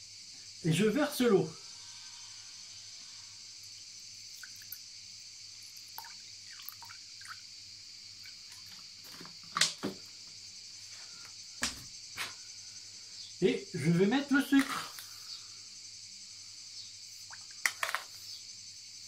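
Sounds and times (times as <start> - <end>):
steady high hiss: 0.0 - 19.0
water dripping: 3.6 - 4.9, 5.6 - 7.5, 8.2 - 9.8, 17.2 - 18.0
water pouring into a metal pan: 5.9 - 7.4.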